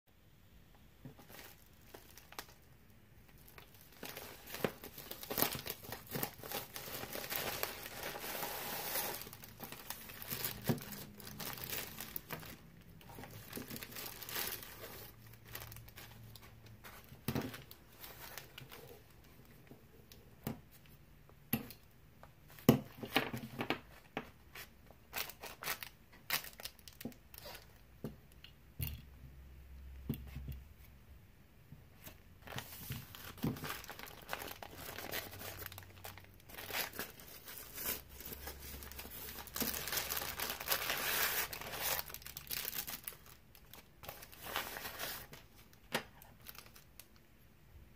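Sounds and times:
plastic mailer crinkling and tearing: 0:01.2 - 0:19.2, 0:25.1 - 0:27.8, 0:32.4 - 0:47.2.

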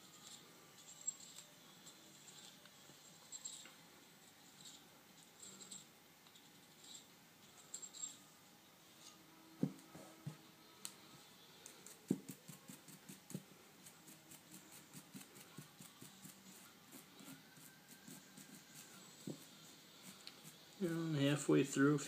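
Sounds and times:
toothbrush scrubbing metal: 0:11.8 - 0:20.9.

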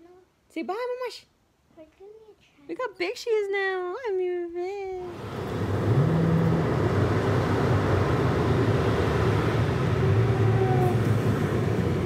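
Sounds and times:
road and engine noise: 0:05.1 - 0:12.0.

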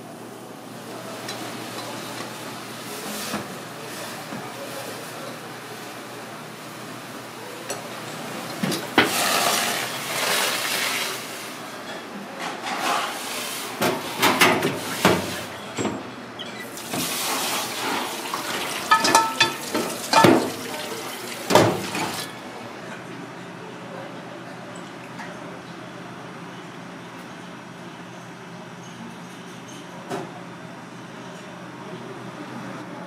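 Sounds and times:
water running in a steel sink: 0:00.8 - 0:11.7, 0:13.0 - 0:15.6, 0:16.6 - 0:22.4
metal pot clanking against sink: 0:18.3 - 0:22.3.

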